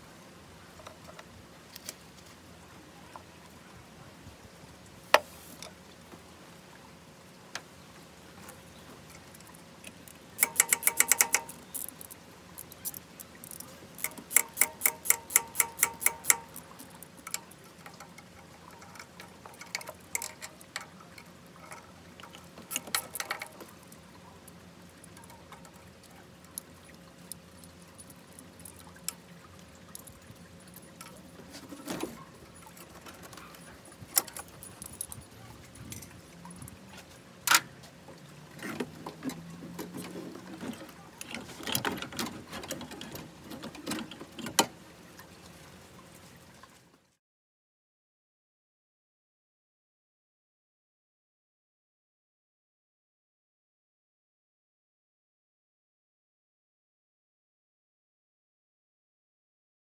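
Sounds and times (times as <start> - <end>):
ratchet wrench clicking: 10.4 - 17.4
metallic clinks: 10.4 - 18.0, 32.3 - 36.2.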